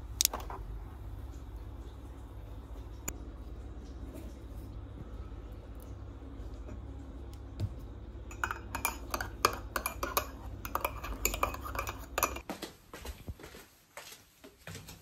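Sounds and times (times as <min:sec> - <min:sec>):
low steady hum: 0:00.0 - 0:12.4
dishes and cutlery clinking: 0:08.3 - 0:12.5.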